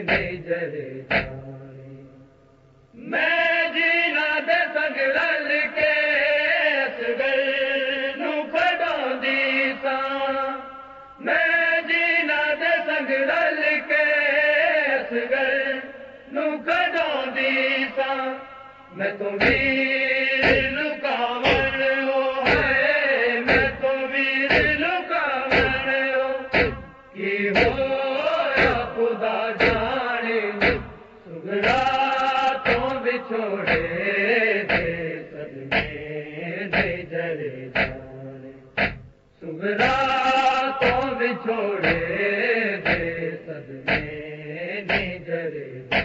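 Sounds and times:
rhythmic chest-beating thumps: 0.0 - 1.5, 19.4 - 37.1, 37.7 - 41.2, 41.8 - 45.3
men chanting: 3.0 - 38.4, 39.4 - 46.0.

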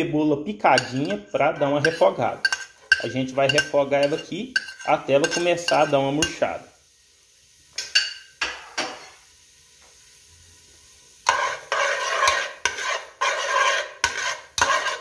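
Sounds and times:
onion sizzling in a pot: 0.0 - 15.0
metal spoon tapping a pot: 0.8 - 1.2, 1.8 - 6.4
spoon scraping a pot: 0.8 - 6.4, 11.2 - 15.0.

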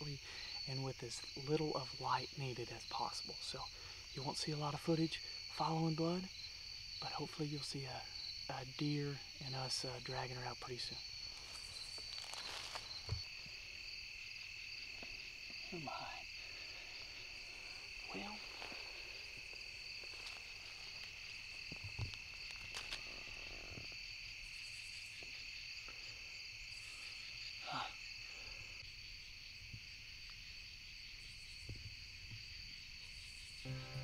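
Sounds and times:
crickets trilling: 0.0 - 34.0
knocks and rustles in grass: 11.3 - 13.4.

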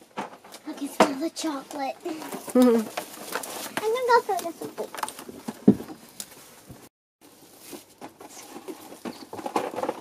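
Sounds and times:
plastic wrap crinkling and tearing: 2.1 - 5.3.

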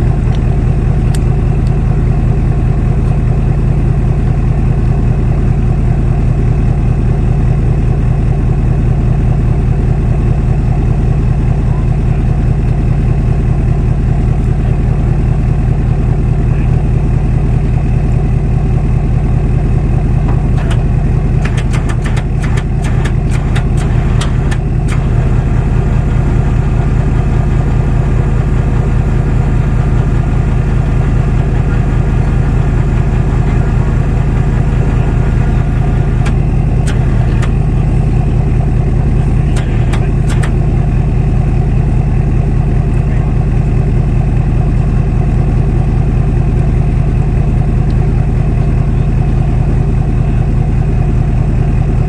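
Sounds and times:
vehicle engine running: 0.0 - 52.0
rapid clicks: 20.5 - 25.4, 39.4 - 40.6.

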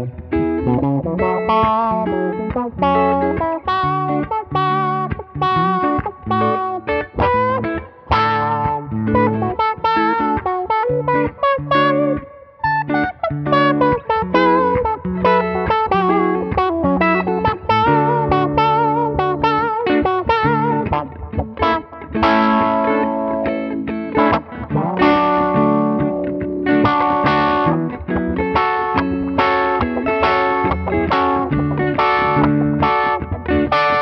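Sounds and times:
electric guitars with auto-wah: 0.0 - 34.0.

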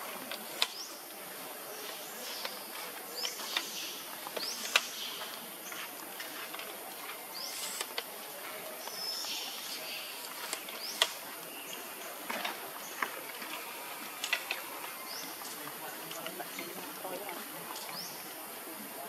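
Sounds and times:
steady high hiss: 0.0 - 19.0.

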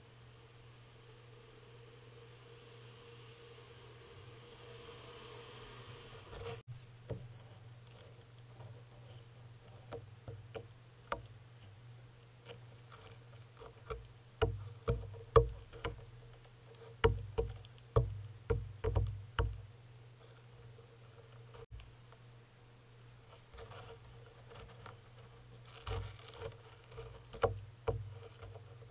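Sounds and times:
gull bill tapping on railing: 8.7 - 11.4, 13.5 - 19.7, 26.9 - 28.9.

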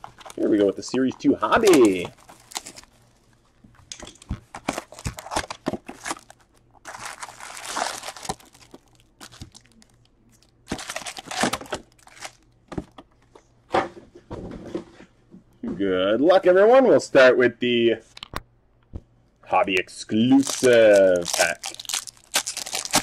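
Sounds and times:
foil card packs crinkling: 0.0 - 3.0, 4.4 - 12.5, 20.3 - 23.0.

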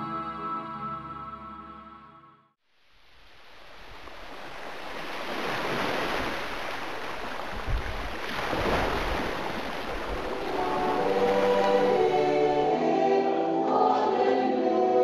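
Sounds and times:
waves washing against rocky shore: 3.8 - 11.6
wind gusts on microphone: 4.0 - 11.7.

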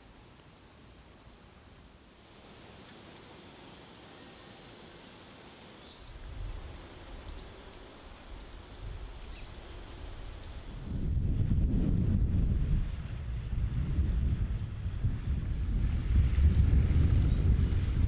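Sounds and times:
outdoor ambient hiss: 0.0 - 16.0
songbirds chirping: 2.2 - 11.2
wind rumble on microphone: 6.0 - 18.0.

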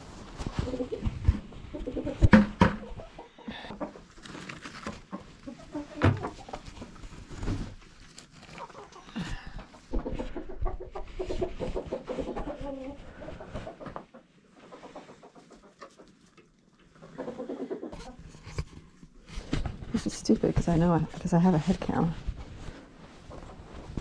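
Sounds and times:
hens clucking: 0.6 - 4.3, 4.9 - 6.9, 8.5 - 18.2.

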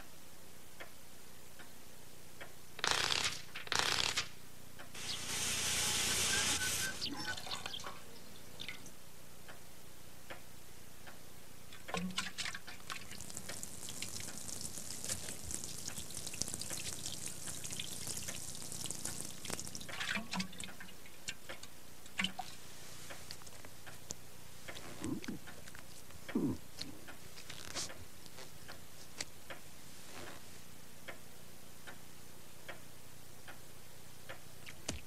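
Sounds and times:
water sprinkling into a fish tank: 12.0 - 22.6.

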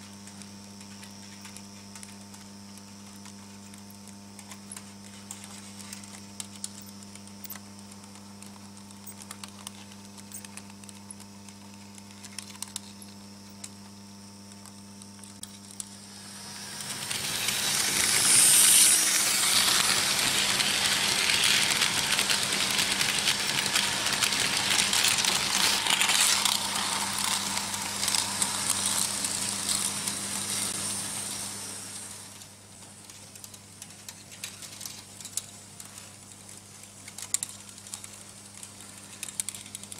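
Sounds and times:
steady electrical hum: 0.0 - 39.9
model train wheels clattering: 16.4 - 31.0, 37.1 - 39.9.

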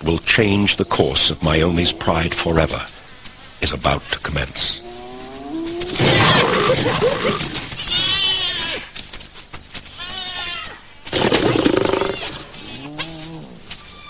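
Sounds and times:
animals growling and snarling: 1.2 - 2.7, 4.6 - 7.9, 11.1 - 13.7.

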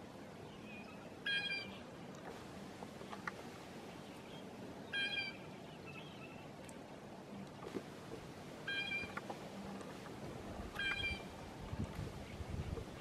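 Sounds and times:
faint bird peeping calls: 0.5 - 1.9, 4.0 - 6.5, 8.6 - 9.2, 10.8 - 11.3
blue jay calls: 1.2 - 1.8, 4.9 - 6.1, 8.7 - 9.2, 10.8 - 11.3.

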